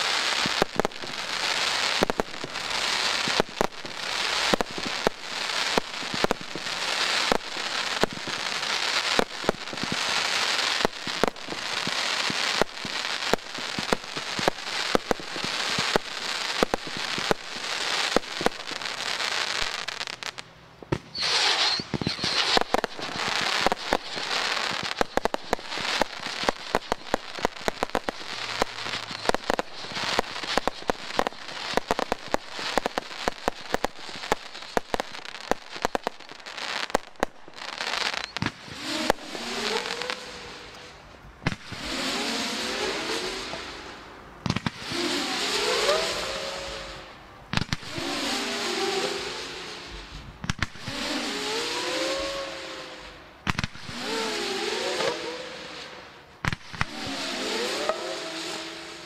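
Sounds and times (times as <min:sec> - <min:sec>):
firework hiss: 0:00.0 - 0:59.0
fireworks bangs and crackling: 0:00.0 - 0:59.0.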